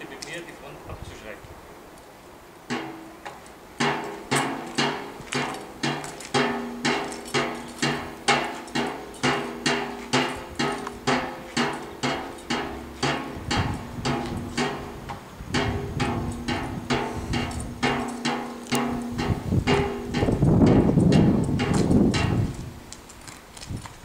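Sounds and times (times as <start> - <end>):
sharp ringing strikes: 3.8 - 15.0, 15.6 - 22.5.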